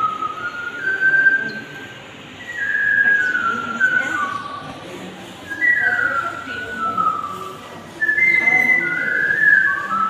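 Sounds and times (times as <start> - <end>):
person whistling a tune: 0.0 - 4.7, 5.5 - 10.0
low room murmur: 0.0 - 10.0.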